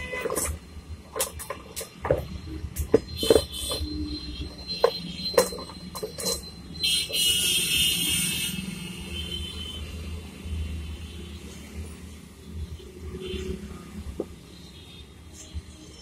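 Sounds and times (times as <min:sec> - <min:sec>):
metal parts knocking and clicking: 0:00.0 - 0:07.4.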